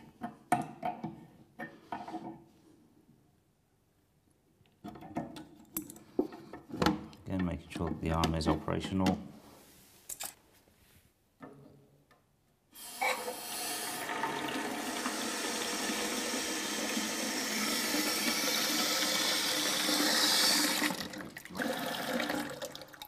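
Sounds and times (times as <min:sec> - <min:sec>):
water rushing into cistern: 0:13.3 - 0:23.0.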